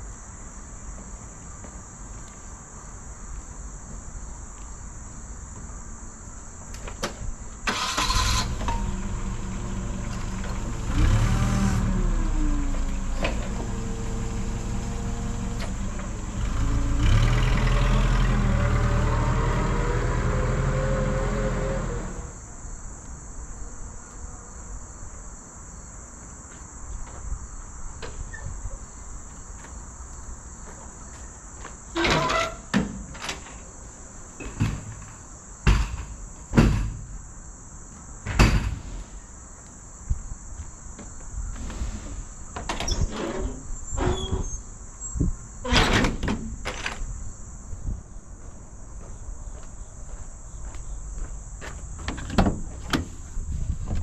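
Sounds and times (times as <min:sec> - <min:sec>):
insects trilling: 0:00.0 - 0:54.0
forklift engine revving: 0:07.7 - 0:22.4
knocks on metal truck door: 0:35.6 - 0:37.1, 0:38.3 - 0:38.8.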